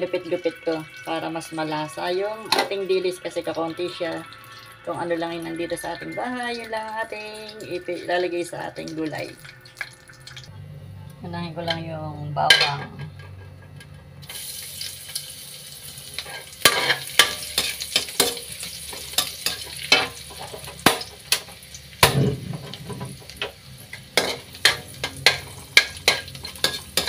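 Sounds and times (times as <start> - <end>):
garlic sizzling in oil: 0.0 - 10.5, 14.2 - 27.0
metal spatula scraping wok: 16.0 - 27.0.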